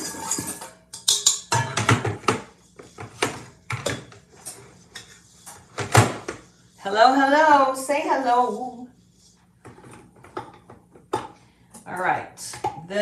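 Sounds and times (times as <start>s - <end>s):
metal bowl and whisk clanking: 0.0s - 5.7s.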